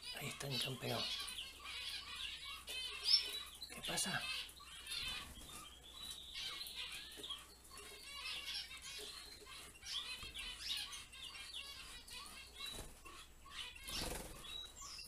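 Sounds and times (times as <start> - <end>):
finches chirping: 0.0 - 15.0
wing flutters: 13.8 - 14.6.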